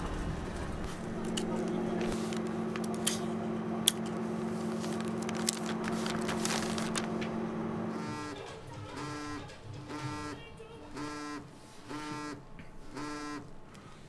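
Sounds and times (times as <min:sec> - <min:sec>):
low hum: 0:00.0 - 0:09.2
paper crackling and crinkling: 0:00.8 - 0:08.1.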